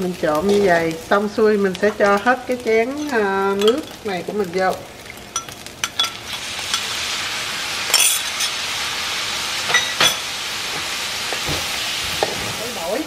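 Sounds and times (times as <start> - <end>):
sauce sizzling on hot rice: 0.0 - 13.0.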